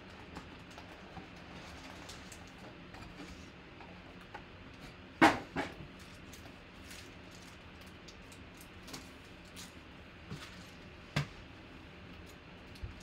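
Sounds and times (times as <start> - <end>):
foil packs crinkling: 5.8 - 10.9.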